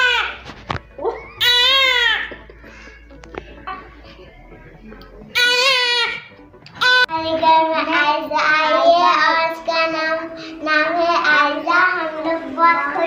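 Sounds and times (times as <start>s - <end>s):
newborn baby crying: 1.0s - 3.0s
girl singing: 7.1s - 13.0s.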